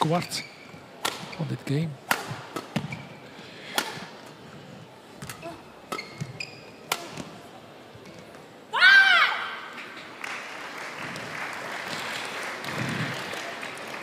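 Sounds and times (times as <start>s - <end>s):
shoes squeaking on court floor: 0.0s - 3.3s, 5.1s - 8.5s
racket hitting shuttlecock: 1.0s - 1.4s, 2.0s - 3.1s, 3.7s - 4.2s, 5.2s - 7.4s.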